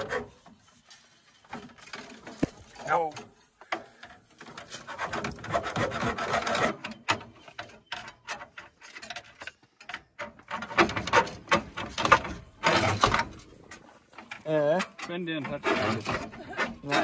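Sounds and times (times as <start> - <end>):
hands handling engine parts: 0.2 - 4.9.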